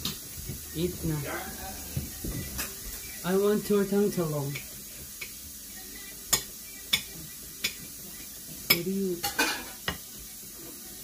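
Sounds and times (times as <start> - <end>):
metal spoon clinking on dishes: 6.3 - 7.9, 8.6 - 10.0.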